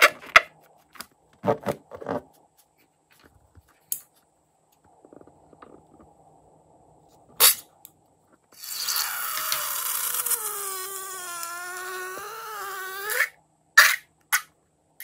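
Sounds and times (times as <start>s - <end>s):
balloon neck squealing: 8.6s - 14.4s.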